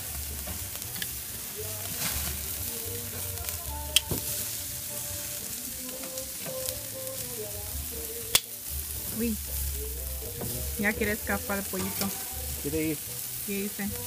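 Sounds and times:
chicken sizzling on grill: 0:00.0 - 0:14.0
metal tongs clicking on grate: 0:00.5 - 0:01.1, 0:11.8 - 0:12.2.

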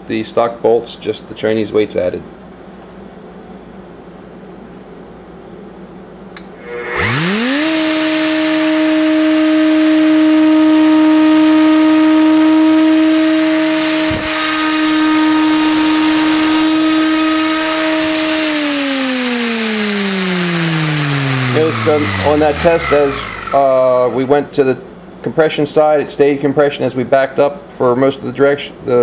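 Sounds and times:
router whining: 0:06.4 - 0:24.4.

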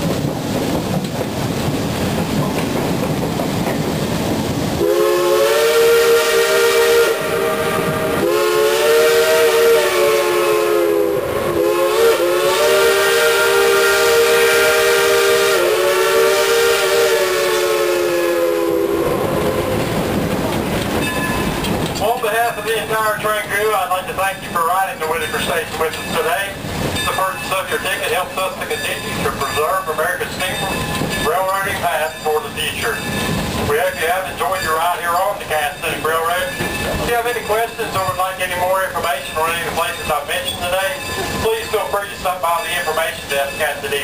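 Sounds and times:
wind on microphone: 0:00.0 - 0:06.2, 0:07.0 - 0:08.4, 0:18.6 - 0:22.0
train running noise: 0:00.0 - 0:44.0
steam locomotive chime whistle: 0:04.8 - 0:19.9, 0:21.0 - 0:44.0.

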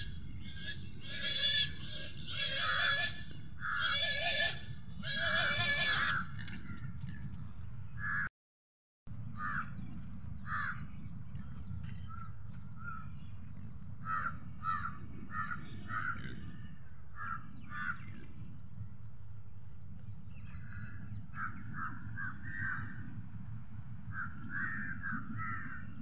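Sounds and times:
crows cawing: 0:00.6 - 0:06.8, 0:08.0 - 0:08.3, 0:09.4 - 0:09.7, 0:10.4 - 0:10.8, 0:14.0 - 0:16.3, 0:17.2 - 0:18.1, 0:24.1 - 0:25.9.

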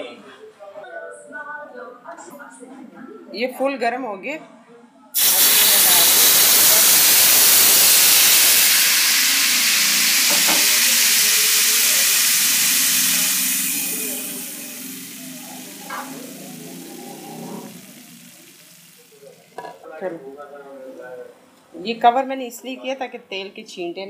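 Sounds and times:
hot oil sizzling: 0:05.2 - 0:19.8.

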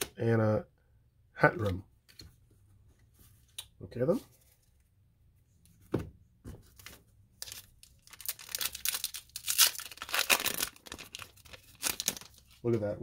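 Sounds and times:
foil wrapper tearing and crinkling: 0:07.4 - 0:12.6.

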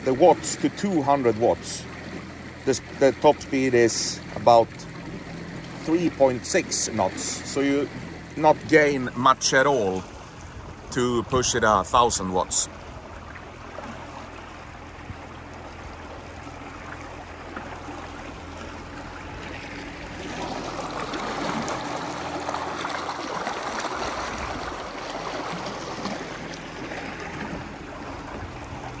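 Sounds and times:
low steady motor hum: 0:00.0 - 0:29.0
water rushing along boat hull: 0:00.0 - 0:29.0.

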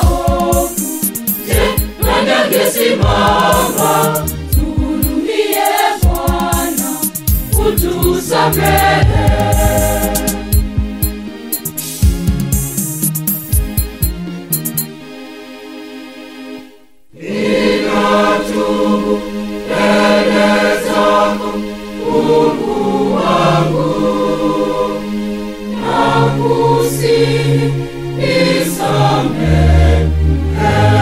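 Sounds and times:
church choir singing: 0:00.0 - 0:10.6, 0:17.1 - 0:31.0.

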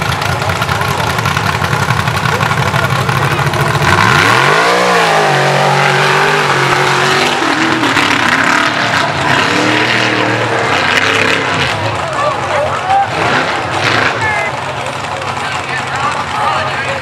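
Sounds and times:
racing engine revving hard: 0:02.4 - 0:14.7.

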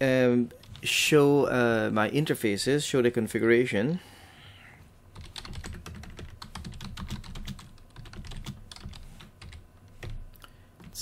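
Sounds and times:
typing on computer keyboard: 0:05.2 - 0:11.0.

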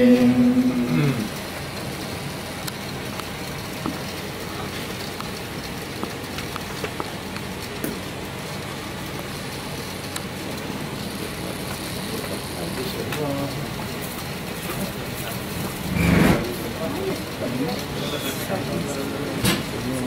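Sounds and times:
steady rushing room noise: 0:00.0 - 0:20.0
faint clicks and taps: 0:06.0 - 0:08.0.

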